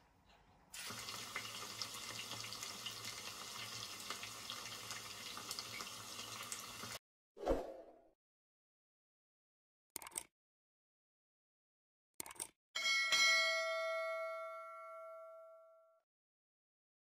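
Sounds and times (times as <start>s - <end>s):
egg sizzling in a frying pan: 0.8s - 7.0s.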